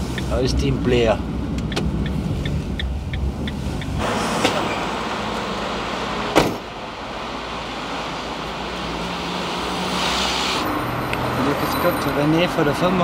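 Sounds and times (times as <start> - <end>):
vehicle and street noise: 0.0 - 13.0
van door slamming shut: 6.3 - 6.7.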